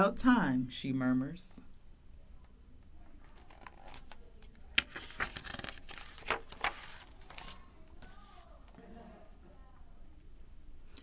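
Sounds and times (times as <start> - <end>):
paper page rustling: 3.2 - 8.8.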